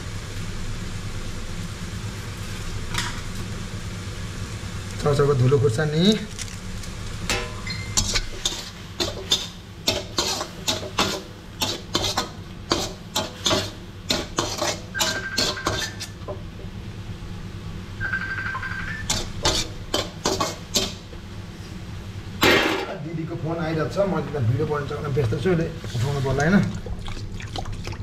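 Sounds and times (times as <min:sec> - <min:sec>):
spatula scraping a wok: 0:07.9 - 0:16.1, 0:19.1 - 0:21.0.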